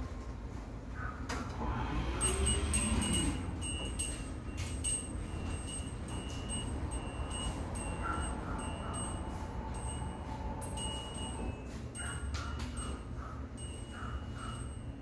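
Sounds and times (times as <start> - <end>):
low steady hum: 0.0 - 15.0
high electronic beeps: 2.2 - 13.0.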